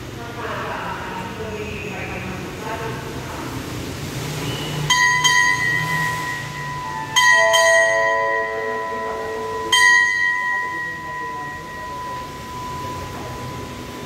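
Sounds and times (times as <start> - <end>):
brass bell ringing: 4.9 - 14.0.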